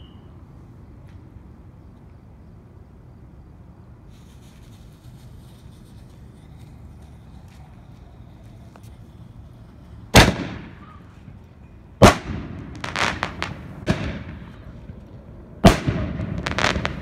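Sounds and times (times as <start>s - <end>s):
firework shell bangs with echo: 10.2s - 11.0s
crackling reports of bursting stars: 12.0s - 17.0s.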